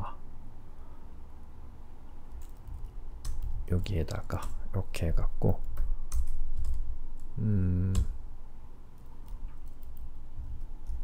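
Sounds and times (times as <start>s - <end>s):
computer keyboard typing: 2.3s - 4.6s, 5.5s - 8.2s, 9.0s - 11.0s
person humming: 7.4s - 8.2s.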